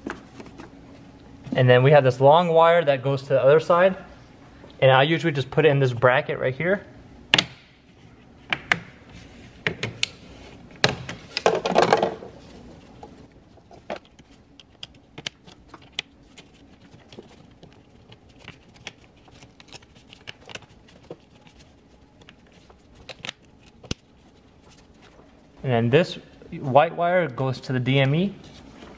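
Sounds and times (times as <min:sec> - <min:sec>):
rustling and scraping: 0:10.3 - 0:25.6, 0:27.8 - 0:28.9.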